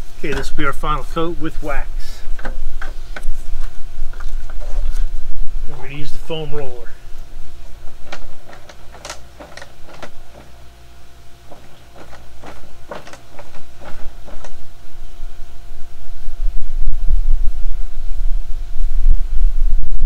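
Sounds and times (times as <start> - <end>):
faint steady hum: 0.0 - 20.0
containers and tools clicking: 7.7 - 10.6, 11.5 - 14.6
wind rumble on microphone: 13.7 - 20.0.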